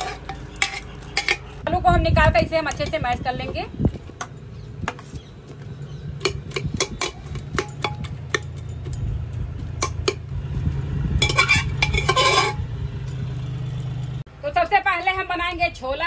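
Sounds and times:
ladle clinking in steel pot: 6.2s - 8.6s, 11.2s - 12.6s.

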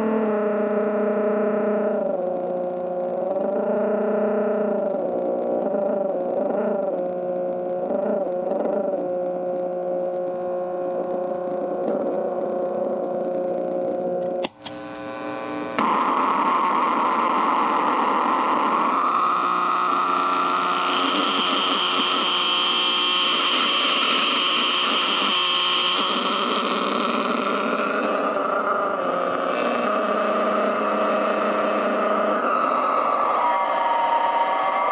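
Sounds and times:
distorted amp buzzing drone: 0.0s - 34.9s
high whine: 0.0s - 34.9s
switch click: 14.4s - 15.1s.

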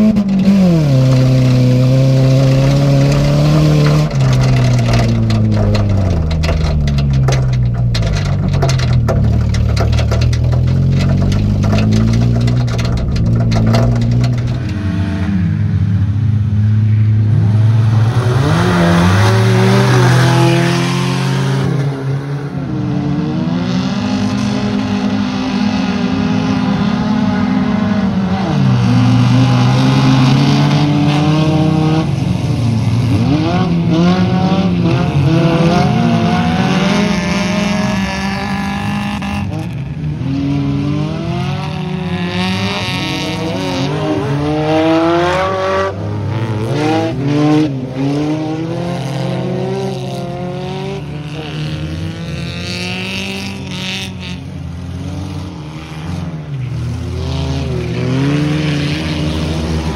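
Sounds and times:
racing car engines revving: 0.0s - 59.9s.

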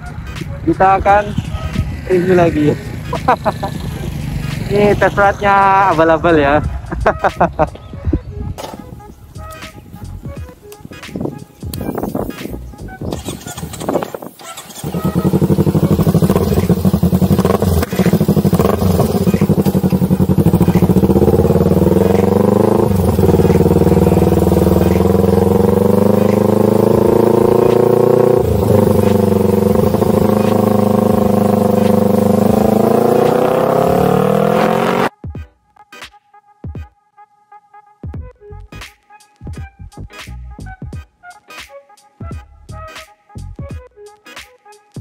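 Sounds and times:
motorcycle exhaust accelerating: 0.0s - 5.7s, 12.9s - 35.1s.

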